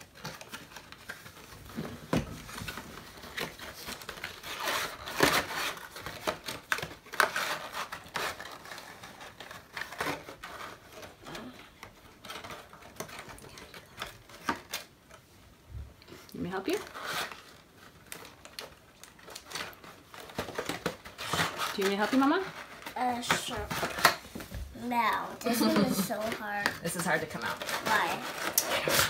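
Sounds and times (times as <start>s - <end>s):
cardboard box scraping and crinkling: 27.2s - 29.0s.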